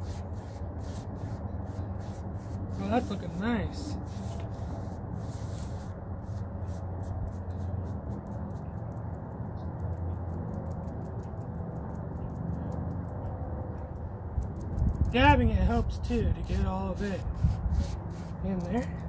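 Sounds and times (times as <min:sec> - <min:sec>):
foam brush dabbing on wood: 0:00.0 - 0:09.0, 0:15.0 - 0:19.0
low outdoor rumble: 0:00.0 - 0:19.0.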